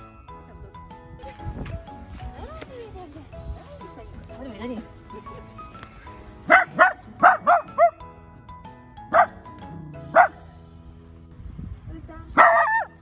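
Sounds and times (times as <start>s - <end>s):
dog barking high-pitched: 6.5s - 8.0s, 9.1s - 9.4s, 10.1s - 10.4s, 12.4s - 13.0s.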